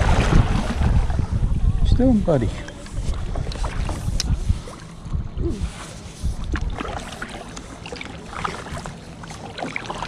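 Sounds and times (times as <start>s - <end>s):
wind buffeting microphone: 0.0s - 7.0s
water splashing around a kayak: 0.0s - 10.0s.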